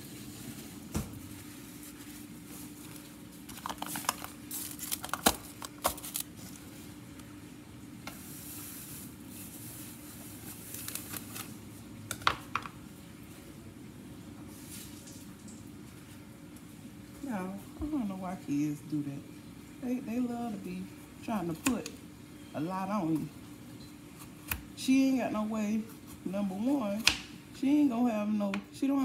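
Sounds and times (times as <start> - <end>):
food packaging crinkling: 0.0 - 7.3, 8.2 - 12.4.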